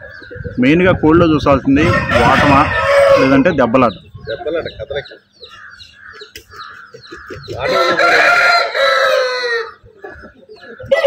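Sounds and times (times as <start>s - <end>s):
chickens clucking: 0.0s - 11.0s
rooster crowing: 1.8s - 3.6s, 7.6s - 9.8s.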